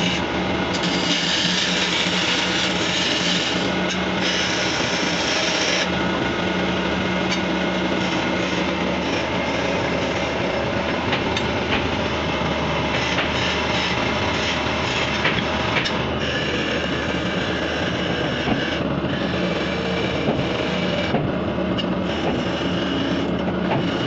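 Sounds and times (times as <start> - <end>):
chisel scraping spinning wood: 0.0 - 5.9, 12.8 - 21.2, 22.0 - 24.0
wood lathe running: 0.0 - 24.0.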